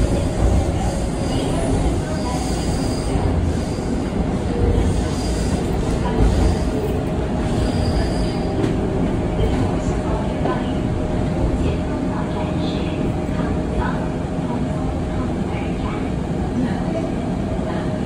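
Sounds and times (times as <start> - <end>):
train wheels rumbling on rail: 0.0 - 18.0
high wheel squeal: 7.5 - 8.6.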